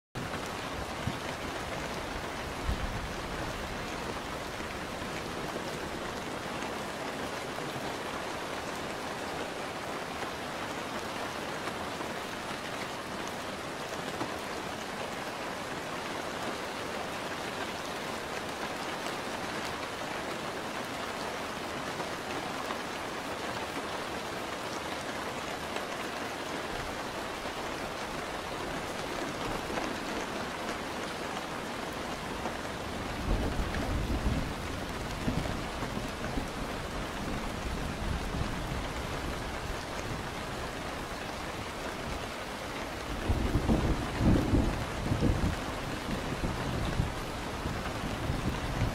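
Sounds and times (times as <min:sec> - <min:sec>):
steady rain falling: 0:00.2 - 0:48.9
thunder rumble: 0:43.2 - 0:48.9.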